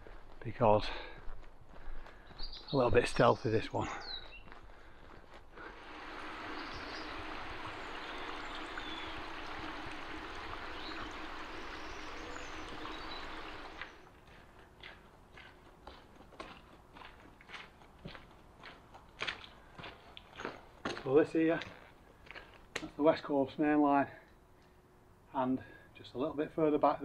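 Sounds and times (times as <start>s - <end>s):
footsteps on dirt track: 0.0s - 6.7s, 13.8s - 22.9s
stream water rushing: 5.7s - 14.0s.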